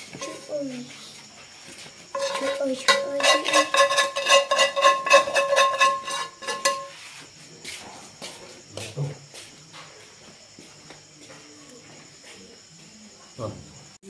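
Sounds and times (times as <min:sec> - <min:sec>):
metal bowl ringing: 0:00.2 - 0:00.5, 0:02.1 - 0:07.0
spoon clinking in metal bowl: 0:00.2 - 0:00.5, 0:02.1 - 0:07.0.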